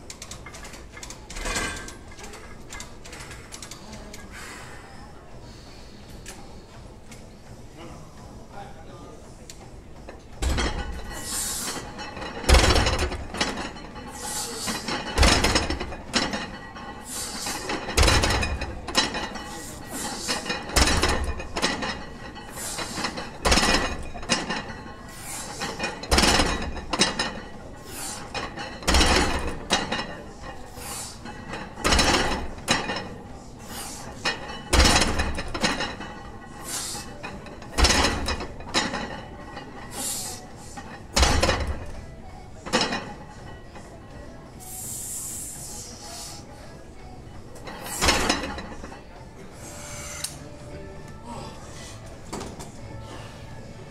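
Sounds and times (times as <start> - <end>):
barbell plates thumping floor: 12.5 - 13.4, 28.8 - 30.0, 34.3 - 36.2.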